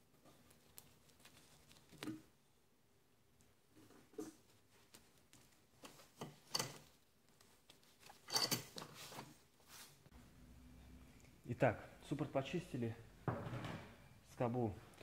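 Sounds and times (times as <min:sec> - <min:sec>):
gloved hands rustling and clicking: 0:00.0 - 0:02.4, 0:04.3 - 0:09.4.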